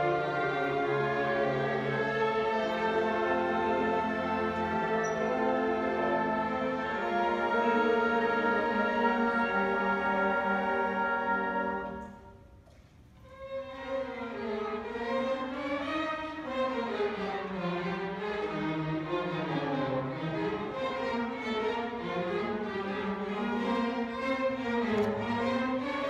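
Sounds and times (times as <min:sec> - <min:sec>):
strings playing flowing melody: 0:00.0 - 0:12.5, 0:13.2 - 0:26.0
orchestra playing: 0:00.0 - 0:12.6, 0:13.2 - 0:26.0.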